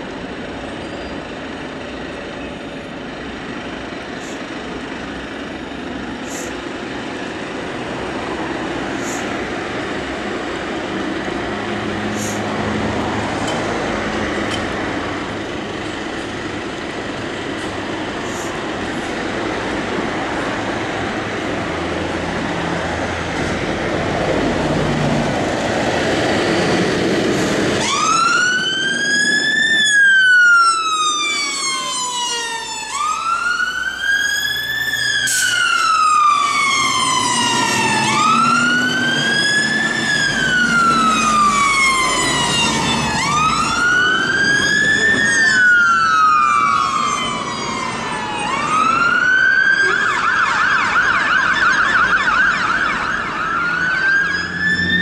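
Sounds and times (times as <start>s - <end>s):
diesel engine rumbling: 0.0s - 55.0s
siren wailing and yelping: 27.8s - 55.0s.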